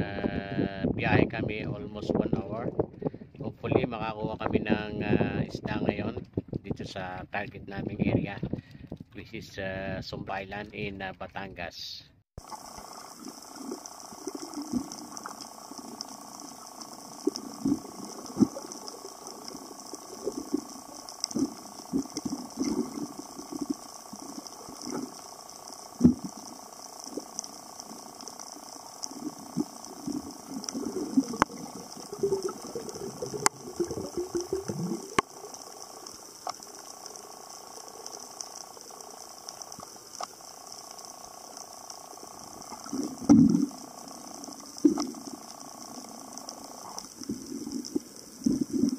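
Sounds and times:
steady hiss: 12.4 - 48.9
sharp clicks: 13.6 - 48.9.

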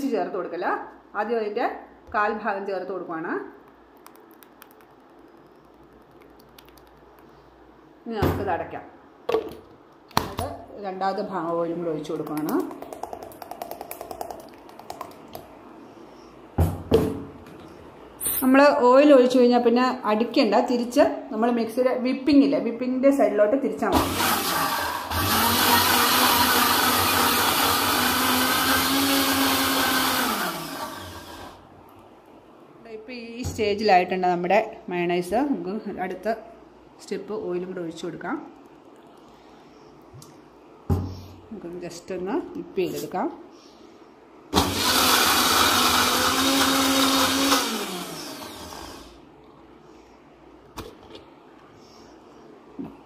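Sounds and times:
mixer grinder motor running: 24.0 - 31.6, 44.6 - 49.2.

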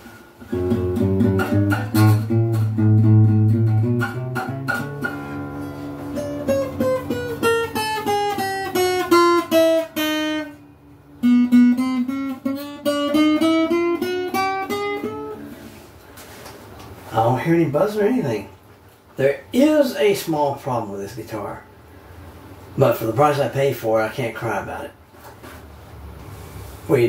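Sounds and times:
acoustic guitar playing: 0.0 - 18.5.

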